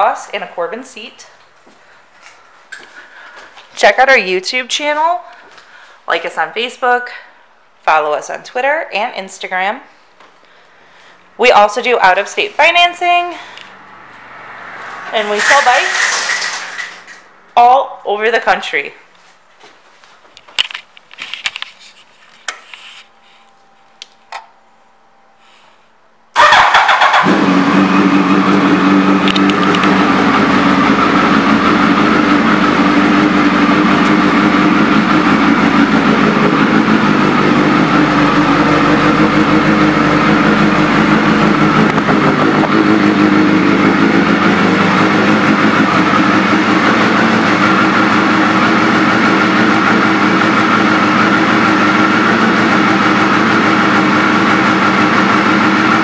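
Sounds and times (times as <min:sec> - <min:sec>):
motorcycle engine idling: 0:26.4 - 0:56.0.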